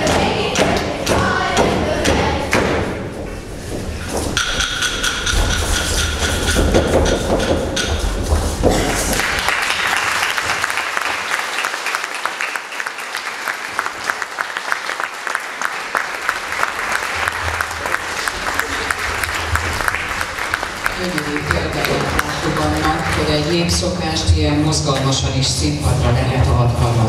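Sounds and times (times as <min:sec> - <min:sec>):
stamping on a wooden stage: 0:00.0 - 0:09.8
audience applause: 0:09.1 - 0:23.9.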